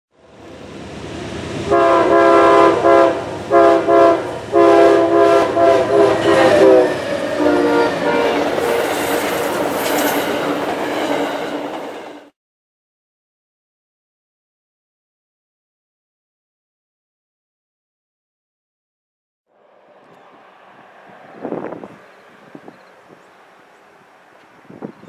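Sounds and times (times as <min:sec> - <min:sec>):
train cars rushing with wheel clatter: 0:00.2 - 0:12.3, 0:19.6 - 0:25.0
train air horn blasts: 0:01.6 - 0:10.7, 0:19.5 - 0:25.0.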